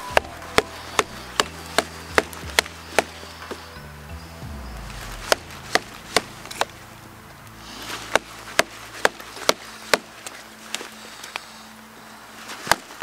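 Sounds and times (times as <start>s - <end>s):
axe chopping wood: 0.0s - 3.6s, 5.0s - 6.8s, 7.9s - 11.0s, 12.6s - 13.0s.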